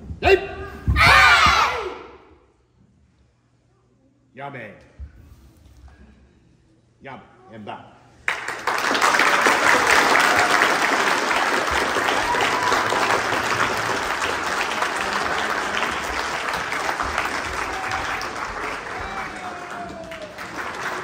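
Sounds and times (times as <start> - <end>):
people clapping: 8.2 - 21.0.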